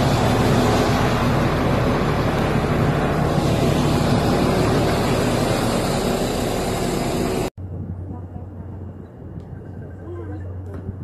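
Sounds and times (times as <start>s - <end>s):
bus engine droning: 0.0s - 7.6s.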